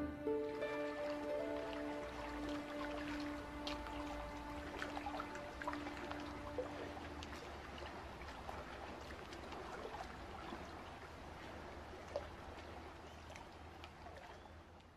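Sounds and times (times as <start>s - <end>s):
held music notes: 0.0s - 7.7s
stream water trickling: 0.0s - 14.9s.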